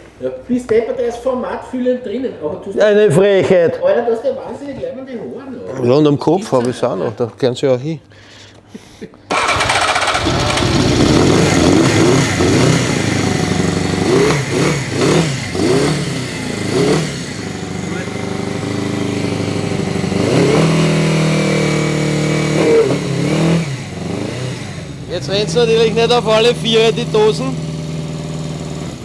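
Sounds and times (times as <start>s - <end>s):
motorcycle engine revving and idling: 9.3s - 29.0s.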